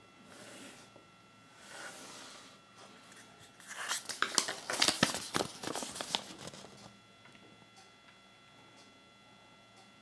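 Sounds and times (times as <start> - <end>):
sharp paper crackles: 3.6 - 6.8
paper rustling and crinkling: 3.6 - 6.9.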